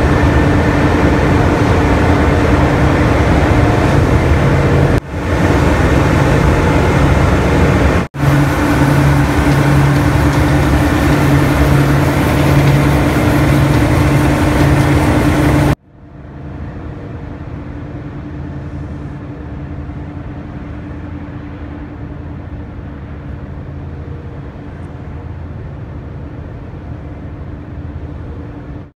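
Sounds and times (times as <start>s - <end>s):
loud mill machinery humming: 0.0s - 15.8s
quiet machine hum: 0.0s - 28.8s
sugar pouring down steel chute: 8.2s - 15.8s.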